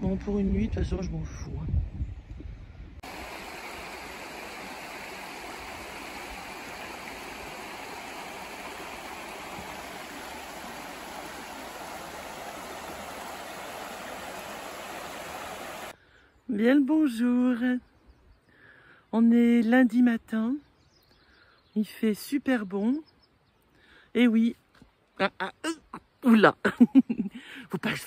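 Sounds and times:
stream running over stones: 0:03.0 - 0:16.0.

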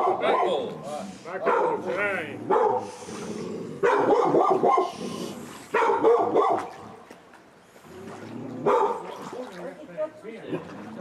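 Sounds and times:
dog barking: 0:00.0 - 0:00.7, 0:01.4 - 0:01.9, 0:02.5 - 0:02.8, 0:03.8 - 0:05.0, 0:05.7 - 0:06.7, 0:08.6 - 0:09.1.

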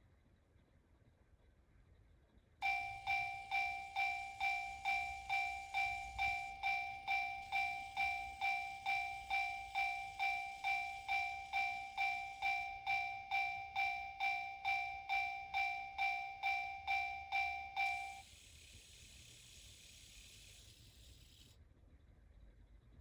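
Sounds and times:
level crossing warning bell: 0:02.6 - 0:18.3.

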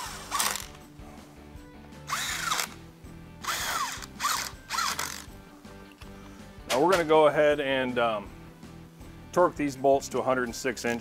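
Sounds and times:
cordless ratchet motor whine: 0:00.0 - 0:00.8, 0:02.1 - 0:02.8, 0:03.4 - 0:05.3.

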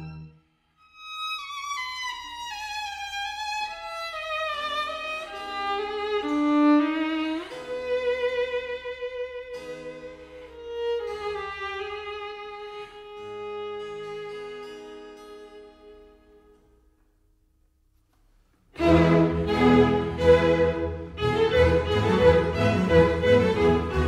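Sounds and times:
slow violin melody: 0:00.0 - 0:16.4, 0:18.8 - 0:24.0
low steady accompaniment: 0:18.7 - 0:24.0.

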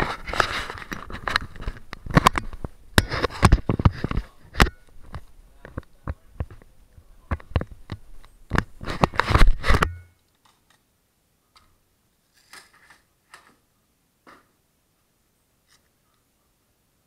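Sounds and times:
camera handling knocks and rubbing: 0:07.4 - 0:09.9.

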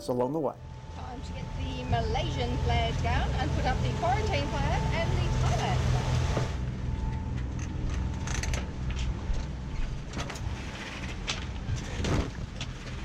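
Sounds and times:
wind and water rushing: 0:01.7 - 0:06.7.

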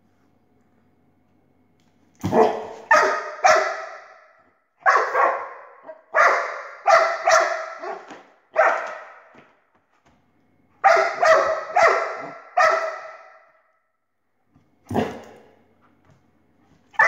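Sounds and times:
dog barking excitedly: 0:02.2 - 0:09.4, 0:10.8 - 0:13.5, 0:14.9 - 0:15.4.

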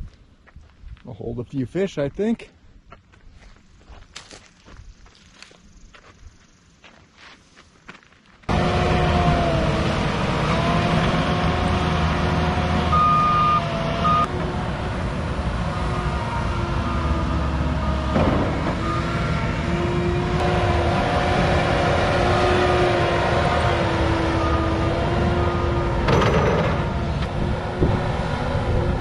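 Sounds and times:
excavator working: 0:08.5 - 0:29.0
loader diesel engine whining: 0:08.5 - 0:29.0.

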